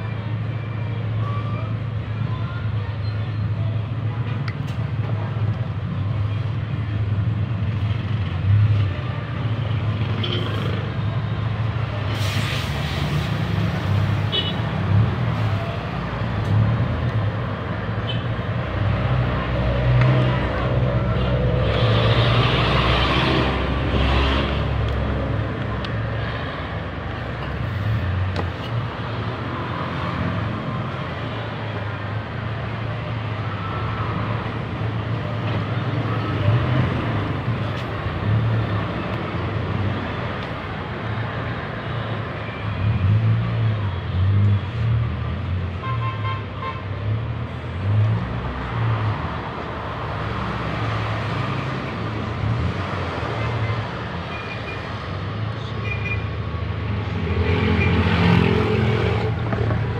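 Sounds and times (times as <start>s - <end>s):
road traffic engine rumble: 0.0s - 59.9s
vehicle horn: 14.3s - 14.6s.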